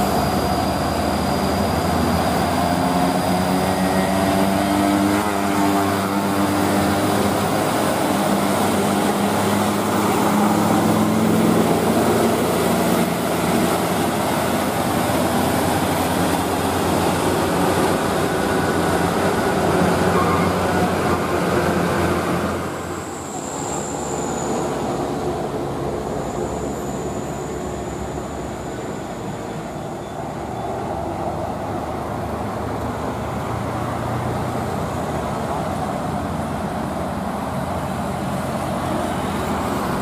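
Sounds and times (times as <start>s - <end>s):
diesel truck engine rumbling: 0.0s - 40.0s
passing road traffic: 0.0s - 40.0s
thin high whine: 22.7s - 30.3s.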